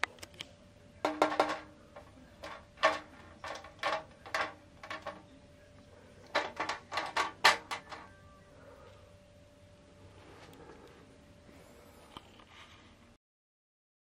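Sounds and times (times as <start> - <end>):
fan shutter slats clacking: 1.1 - 5.2, 6.2 - 8.1.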